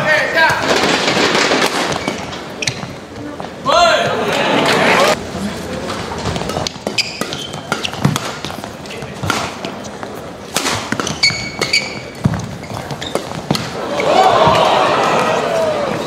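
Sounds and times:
rackets hitting shuttlecock: 0:00.4 - 0:03.0, 0:06.2 - 0:16.0
shoes squeaking on court: 0:01.7 - 0:04.2, 0:05.6 - 0:16.0.

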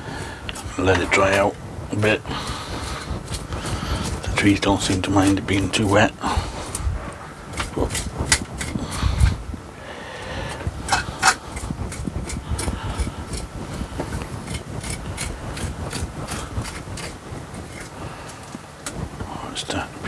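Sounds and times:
hand tool scraping wet soil: 0:02.4 - 0:09.2, 0:10.9 - 0:18.6.

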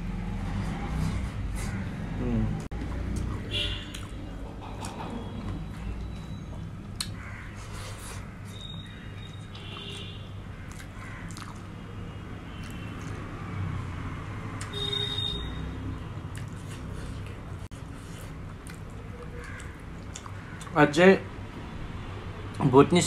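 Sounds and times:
person chewing with wet clicks: 0:02.6 - 0:06.2, 0:06.9 - 0:07.2, 0:09.2 - 0:14.8, 0:15.9 - 0:20.8.

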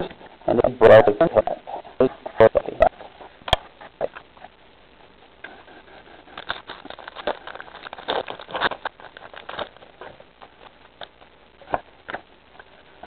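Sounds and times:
foil pack crinkling: 0:06.1 - 0:11.3.

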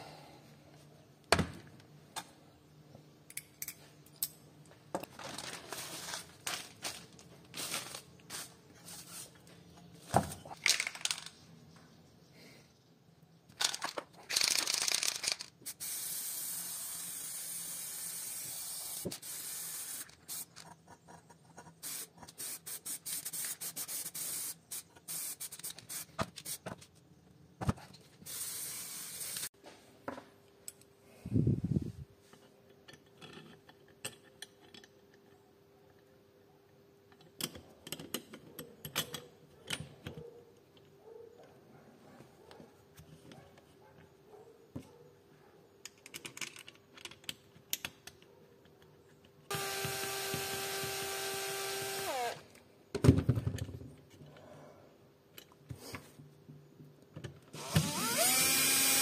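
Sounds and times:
hissing spray bursts: 0:15.7 - 0:20.5, 0:21.8 - 0:26.2, 0:28.3 - 0:29.5.

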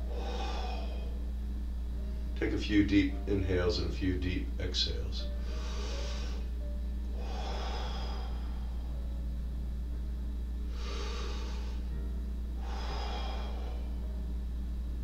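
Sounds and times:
man breathing deeply: 0:00.0 - 0:02.2, 0:05.3 - 0:09.2, 0:10.6 - 0:14.4
steady low hum: 0:00.0 - 0:15.0.

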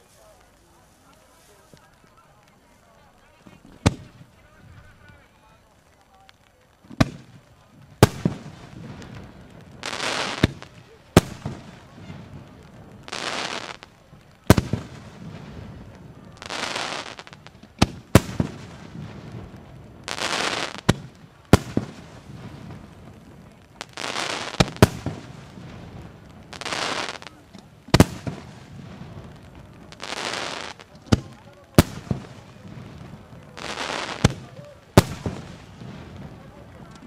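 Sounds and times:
hissing rushes of fireworks: 0:00.0 - 0:37.0
firework shells bursting: 0:16.4 - 0:37.0.

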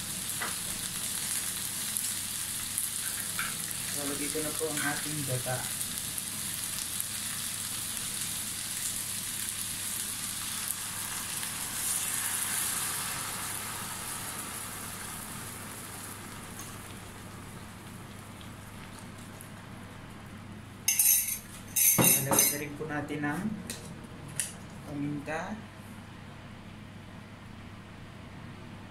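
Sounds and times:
fish sizzling in hot oil: 0:00.0 - 0:19.6
metal spoon clinking: 0:20.9 - 0:22.6.

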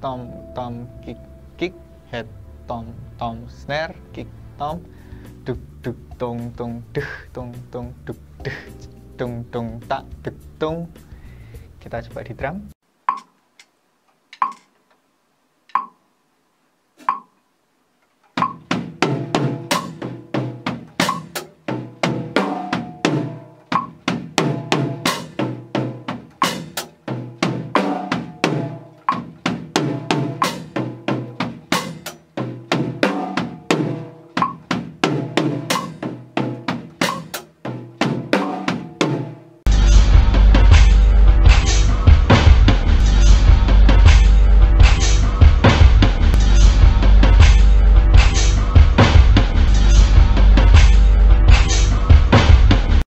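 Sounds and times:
drum kit groove: 0:03.5 - 0:12.8, 0:18.3 - 0:53.0.

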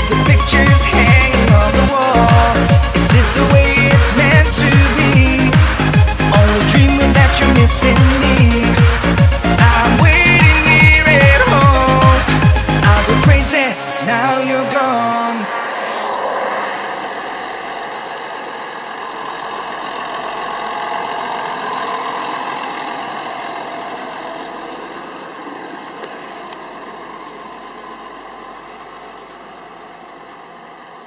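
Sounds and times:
tractor diesel engine driving past: 0:13.8 - 0:31.0.

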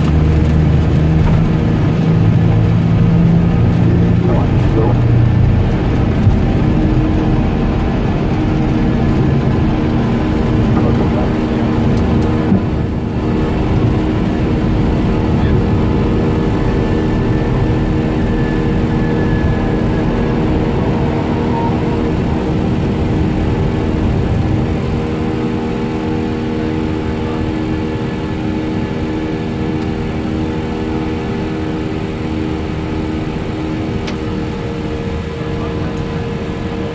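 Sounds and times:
jet engines rumbling: 0:00.0 - 0:36.9
steady tonal hum: 0:02.1 - 0:27.4.

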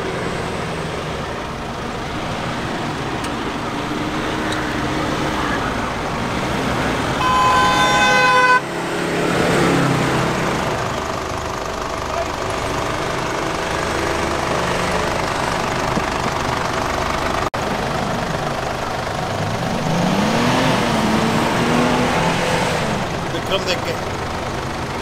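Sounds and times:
engines revving: 0:00.0 - 0:25.0
vehicle horn: 0:07.2 - 0:08.8.

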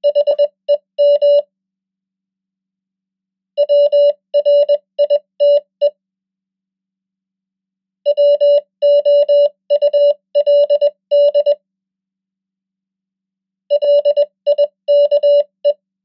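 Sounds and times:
morse code beeps: 0:00.0 - 0:01.5, 0:03.6 - 0:05.7, 0:08.1 - 0:11.6, 0:13.7 - 0:15.8.

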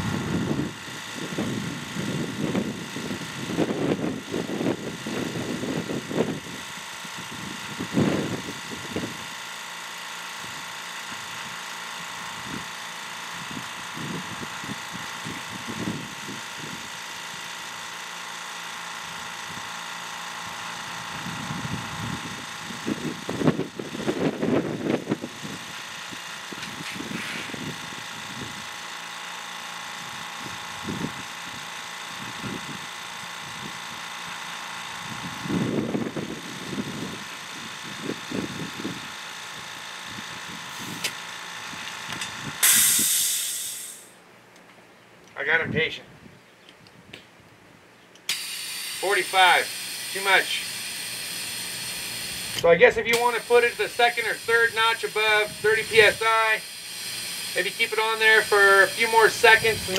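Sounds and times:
low gusty rumbles: 0:00.0 - 0:02.8
air compressor whining: 0:00.0 - 0:44.2, 0:48.2 - 0:59.9.

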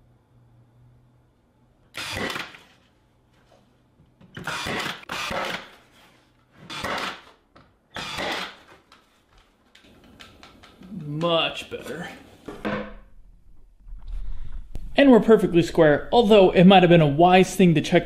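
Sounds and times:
nailer firing into plywood: 0:02.0 - 0:02.7, 0:04.4 - 0:05.8.

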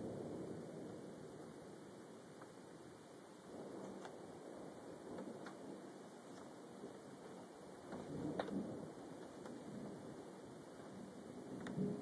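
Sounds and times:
rain hissing: 0:00.0 - 0:12.0
faint tick: 0:11.6 - 0:11.9.

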